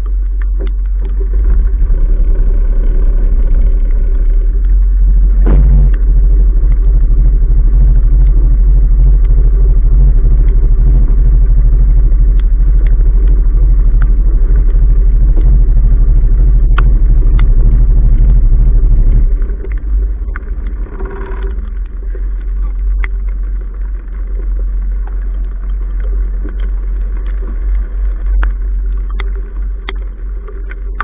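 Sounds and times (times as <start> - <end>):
boat engine rumbling: 0.0 - 31.0
sharp knocks: 5.4 - 6.1.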